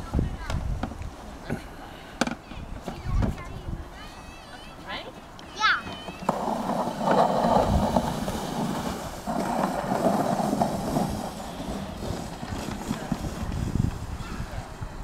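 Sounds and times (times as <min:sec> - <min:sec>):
sled scraping down snow: 0:05.6 - 0:15.0.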